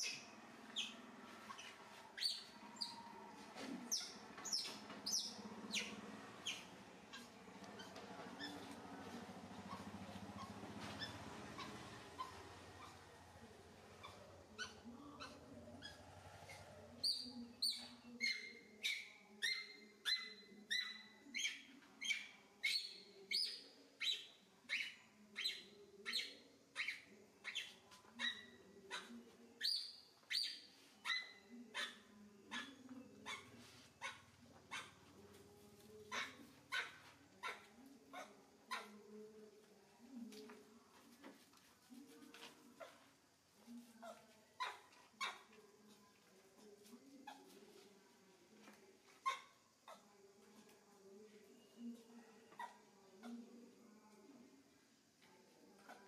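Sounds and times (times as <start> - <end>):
young macaque squealing: 9.7 - 13.0.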